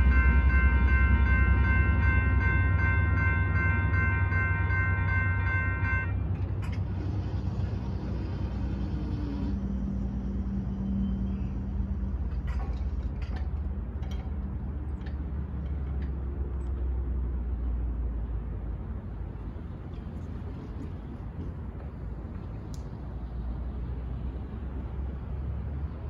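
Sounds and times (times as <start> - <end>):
road vehicles rumbling: 0.0 - 26.0
faint clicks: 22.4 - 23.0.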